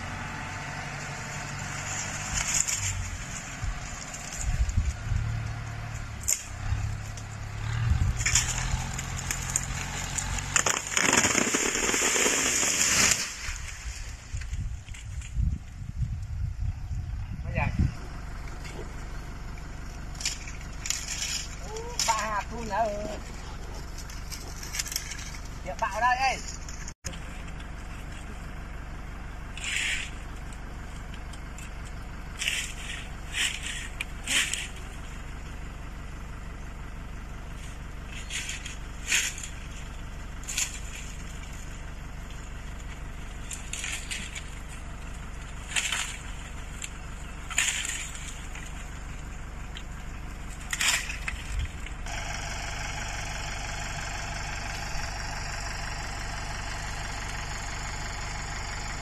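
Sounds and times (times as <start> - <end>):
distant tractor engine running: 0.0 - 59.0
tree crashing with snapping branches: 5.6 - 15.3, 43.4 - 49.3, 50.4 - 57.5.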